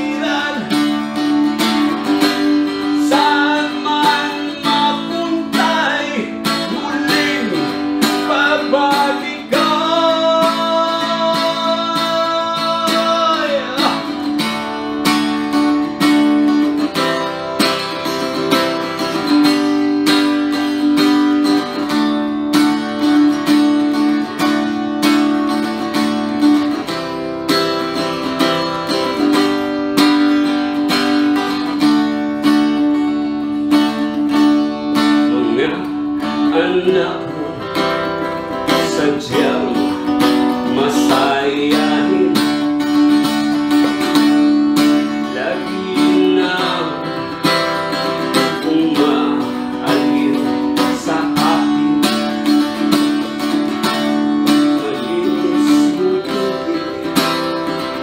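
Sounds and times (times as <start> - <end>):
man singing: 0.0 - 1.6, 2.6 - 14.5, 35.0 - 53.3, 54.0 - 58.0
acoustic guitar strumming: 0.0 - 58.0.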